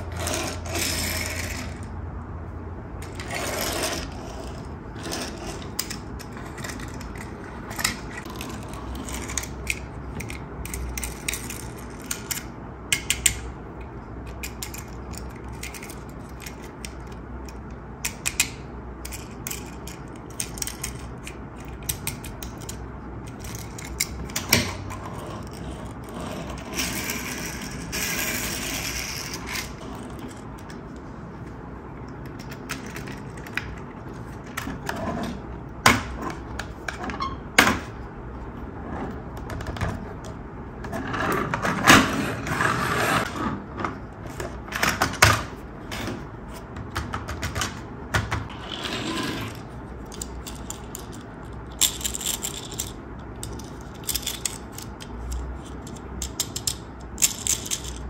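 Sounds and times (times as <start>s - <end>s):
toy car wheels rolling on wood: 0.0s - 1.8s, 3.0s - 7.3s
toy parts clicking: 5.6s - 13.4s, 14.2s - 24.7s, 50.0s - 58.0s.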